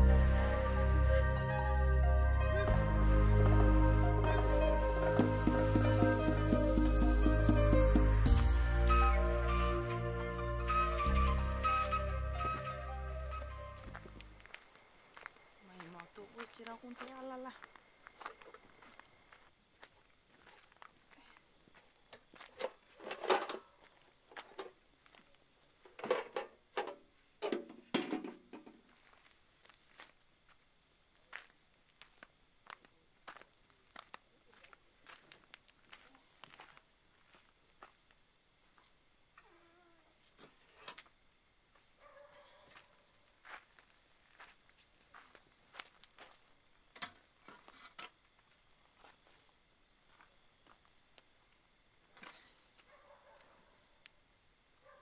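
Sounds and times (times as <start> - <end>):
insects chirping trill: 0.0 - 55.0
knocks and rustles: 25.9 - 28.9.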